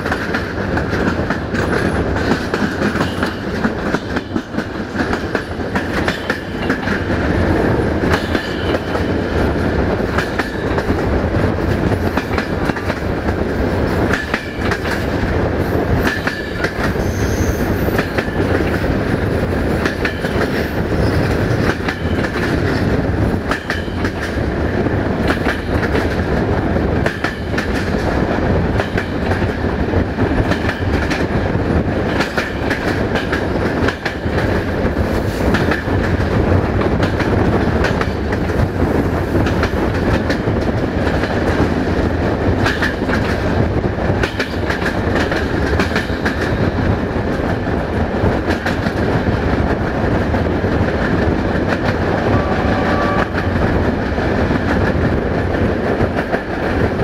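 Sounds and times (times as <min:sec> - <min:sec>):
wheels clacking over rail joints: 0:00.0 - 0:24.5
train wheels rumbling on rails: 0:00.0 - 0:57.0.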